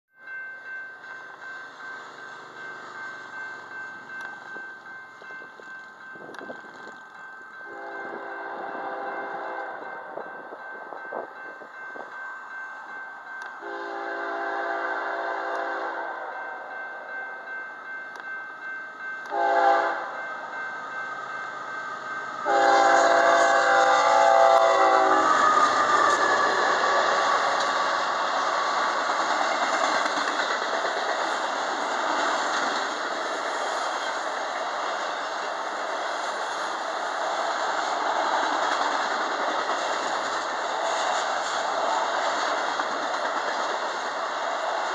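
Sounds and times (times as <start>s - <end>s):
train wheels on rail: 0.2s - 44.9s
locomotive air horn: 7.7s - 9.8s, 13.6s - 16.6s, 19.3s - 20.2s, 22.4s - 27.5s.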